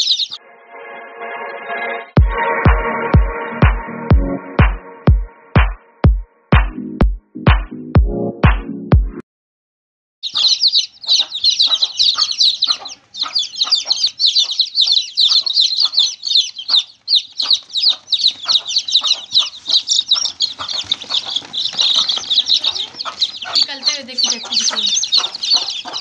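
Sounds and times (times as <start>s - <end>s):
chicks peeping: 0.0s - 0.4s, 10.2s - 26.0s
electronic music with steady beat: 2.2s - 9.2s.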